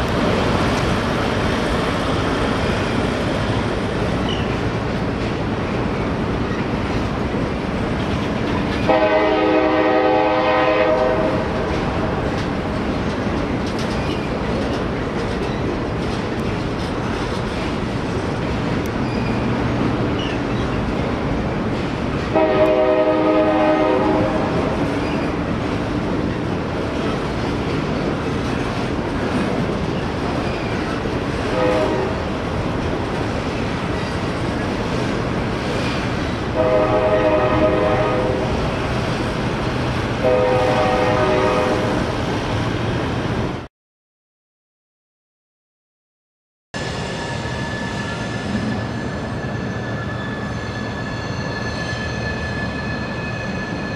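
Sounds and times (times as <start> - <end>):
train rumbling across bridge: 0.0 - 43.7
multi-note train horn: 8.9 - 11.6, 22.3 - 24.7, 31.5 - 32.2, 36.6 - 38.6, 40.2 - 42.0.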